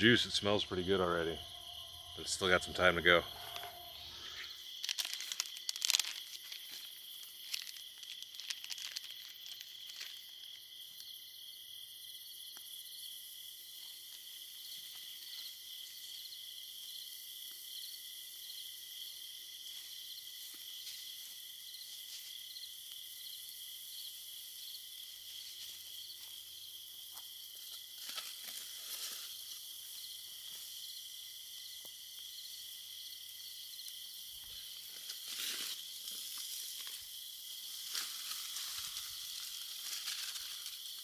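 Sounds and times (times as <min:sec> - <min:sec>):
night insects chirring: 0:00.0 - 0:41.0.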